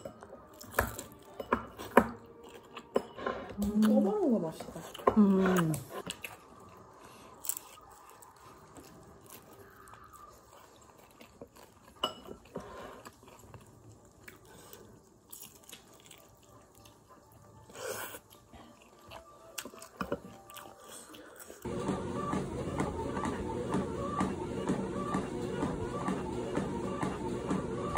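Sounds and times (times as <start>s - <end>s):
chewing crispy food: 0.0s - 3.0s, 3.7s - 21.7s.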